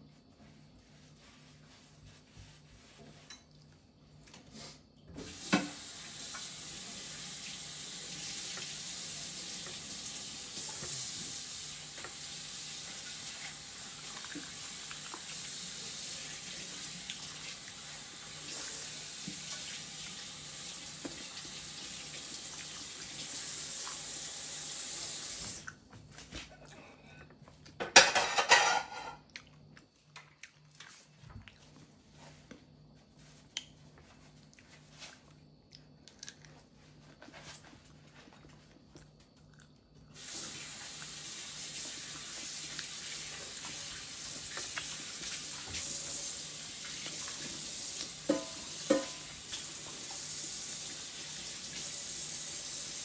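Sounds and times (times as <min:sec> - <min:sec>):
faucet running into metal sink: 0:45.6 - 0:53.0
dishes knocking: 0:48.3 - 0:49.2.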